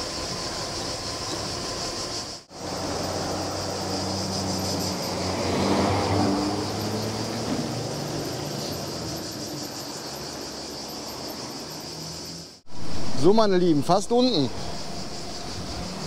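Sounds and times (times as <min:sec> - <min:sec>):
steady high buzz: 0:08.6 - 0:16.0
wind and rolling noise: 0:12.7 - 0:16.0
low droning hum: 0:14.0 - 0:16.0.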